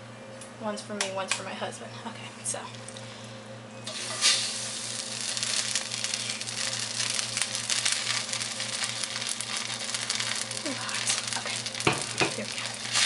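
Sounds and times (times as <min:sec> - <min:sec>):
low electrical hum: 0:00.0 - 0:13.0
noodles sizzling in a wok: 0:03.9 - 0:13.0.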